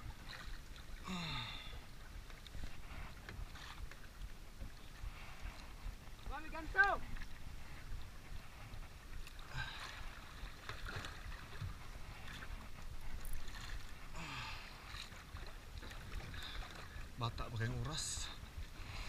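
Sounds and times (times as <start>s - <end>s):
sea water around boat: 0.0s - 19.0s
wind on microphone: 2.6s - 14.2s.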